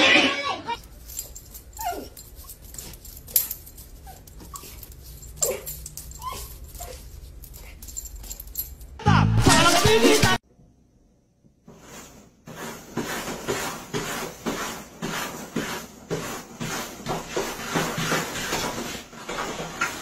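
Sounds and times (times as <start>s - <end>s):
puppy yipping and whimpering: 1.8s - 2.2s, 5.4s - 7.0s
loud music: 9.0s - 10.4s.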